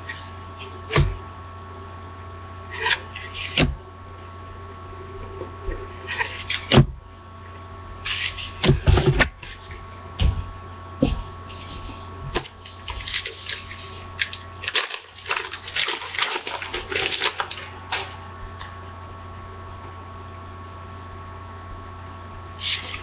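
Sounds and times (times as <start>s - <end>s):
electrical hum: 0.0s - 23.0s
card pack crinkling and rustling: 12.4s - 18.2s.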